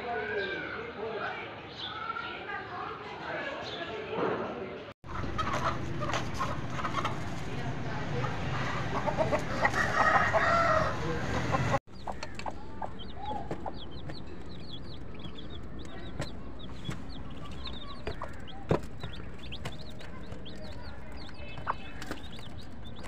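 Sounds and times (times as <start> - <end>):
chicks peeping: 5.0 - 7.6, 8.2 - 23.0
hen clucking: 5.1 - 7.5, 8.2 - 23.0.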